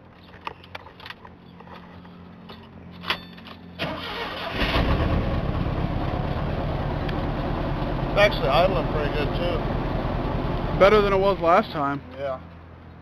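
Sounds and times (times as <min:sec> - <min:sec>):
pickup engine starting and idling: 0:03.8 - 0:11.6.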